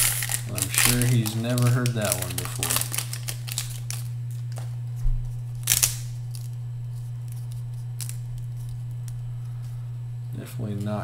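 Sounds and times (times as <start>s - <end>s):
wrapper crinkling and rustling: 0.0s - 4.7s
steady low hum: 0.0s - 11.0s.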